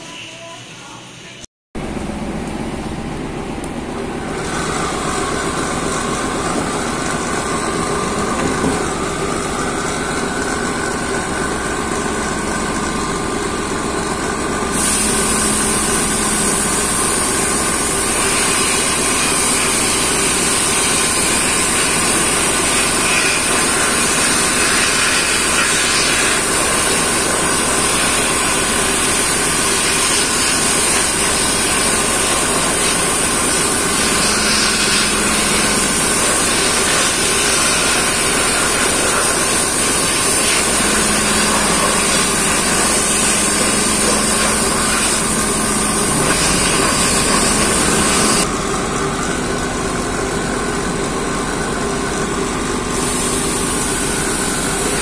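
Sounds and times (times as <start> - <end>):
machine hum: 0.0 - 55.0
sandblasting gun hiss: 14.7 - 48.4, 52.9 - 55.0.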